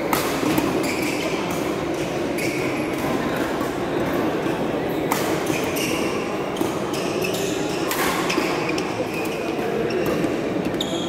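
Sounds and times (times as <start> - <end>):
racket striking shuttlecock: 0.0 - 4.2, 5.1 - 5.6
murmur of voices in hall: 0.0 - 11.0
shoes squeaking on court: 0.4 - 3.0, 5.3 - 11.0.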